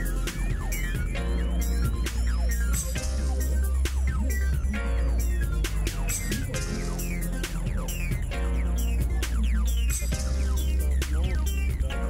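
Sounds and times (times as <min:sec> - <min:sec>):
electronic music: 0:00.0 - 0:12.0.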